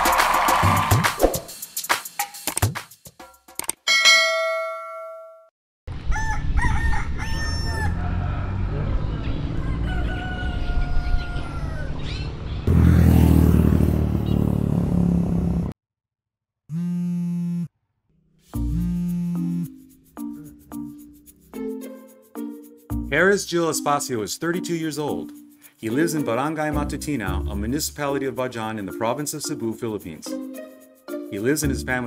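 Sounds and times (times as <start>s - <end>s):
rooster crowing: 6.0s - 12.1s
phone vibrating: 16.7s - 17.7s, 18.7s - 19.7s.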